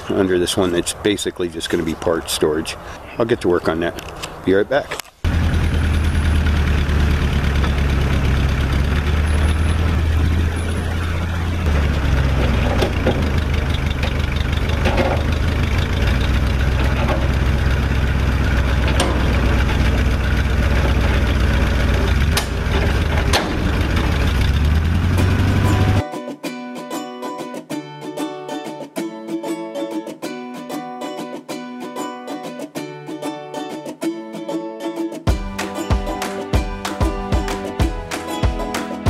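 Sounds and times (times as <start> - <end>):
truck engine running: 0.0 - 3.1, 5.2 - 26.0
sharp knocks: 18.9 - 19.8.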